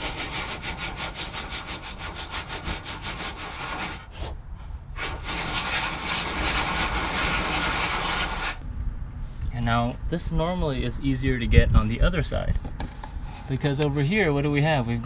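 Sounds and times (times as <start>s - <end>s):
continuous rasping: 0.0s - 4.4s, 5.0s - 8.6s.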